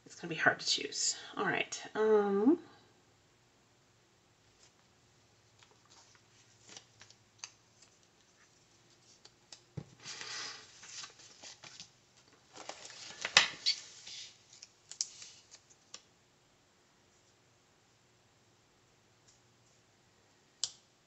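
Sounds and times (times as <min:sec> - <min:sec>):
paper rustling: 0:05.5 - 0:16.0.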